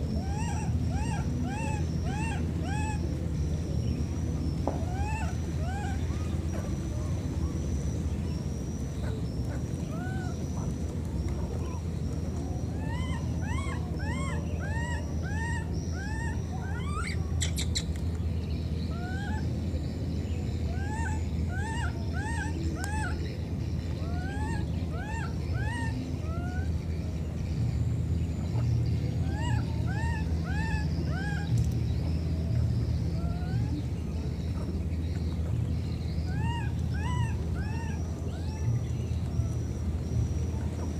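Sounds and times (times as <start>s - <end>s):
baby monkey crying: 36.3s - 38.7s.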